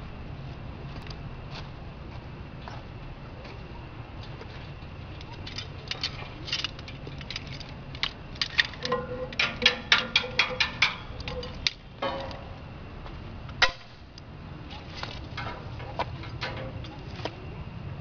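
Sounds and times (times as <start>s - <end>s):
sharp metallic clicks and knocks: 5.2s - 12.6s, 15.0s - 17.4s
crushing machine humming: 5.3s - 18.0s.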